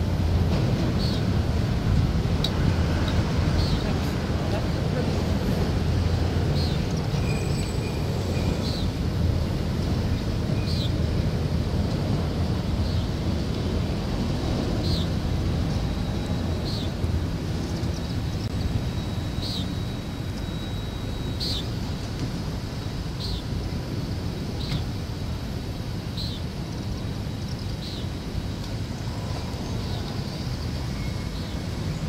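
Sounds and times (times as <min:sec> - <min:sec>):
steel wheels rumbling on rail: 0:00.0 - 0:24.4
wheels squeaking and squealing: 0:06.6 - 0:09.0.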